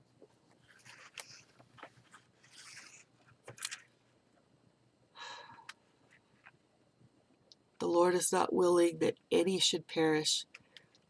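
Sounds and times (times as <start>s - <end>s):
woman breathing: 5.1s - 5.9s.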